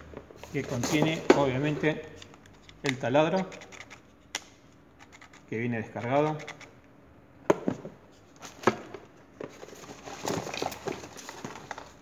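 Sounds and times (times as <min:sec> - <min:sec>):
plastic wrapping crinkling: 0:09.6 - 0:12.0.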